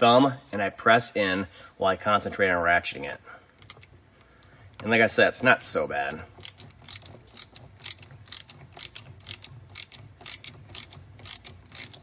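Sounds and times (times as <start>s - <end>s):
hand ratchet clicking: 3.6s - 3.9s, 6.3s - 12.0s.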